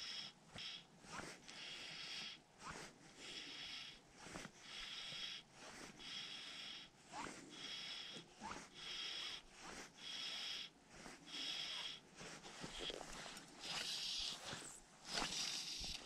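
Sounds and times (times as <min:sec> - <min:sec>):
fly line hissing through rod guides: 0:11.3 - 0:16.0.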